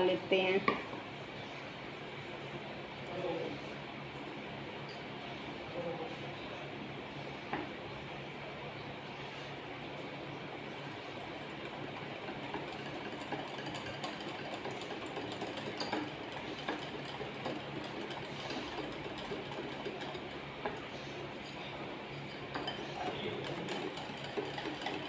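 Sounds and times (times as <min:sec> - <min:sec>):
whisk clinking against glass bowl: 0:22.2 - 0:25.0.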